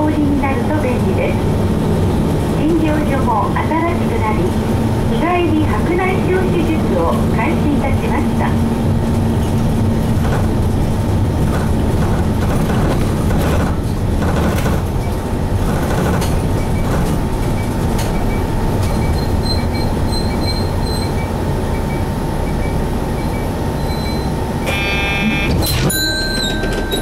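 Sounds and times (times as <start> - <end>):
bus diesel engine droning: 0.0 - 27.0
short high beeps: 21.9 - 27.0.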